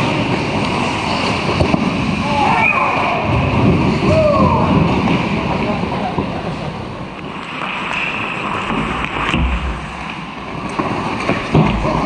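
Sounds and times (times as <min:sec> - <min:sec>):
skate blades scraping ice: 0:00.0 - 0:12.0
thump: 0:09.3 - 0:10.0.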